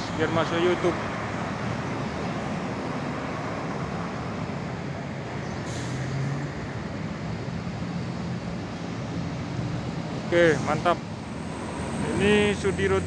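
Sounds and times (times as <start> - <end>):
bus engine running: 0.0 - 13.0
air brakes hissing: 5.6 - 6.3.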